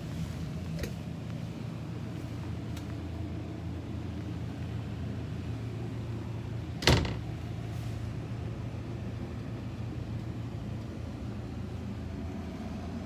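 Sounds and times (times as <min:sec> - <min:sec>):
steady low hum: 0:00.0 - 0:13.0
door bumping shut: 0:06.8 - 0:07.3.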